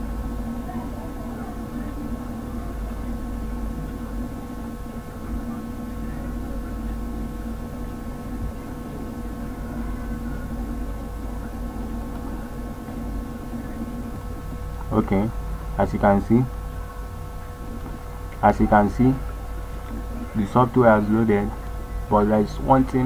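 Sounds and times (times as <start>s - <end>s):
faint steady tones: 0.0s - 23.0s
steady background hum: 0.0s - 23.0s.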